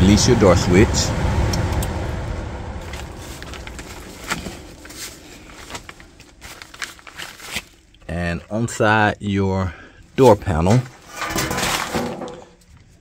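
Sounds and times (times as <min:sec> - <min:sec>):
blower fan whirring: 0:00.0 - 0:07.8.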